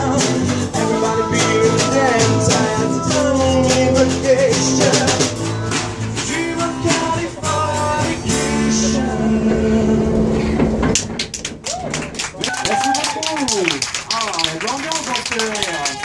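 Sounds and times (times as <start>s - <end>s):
person singing: 0.0s - 10.3s
strummed acoustic guitars: 0.0s - 11.6s.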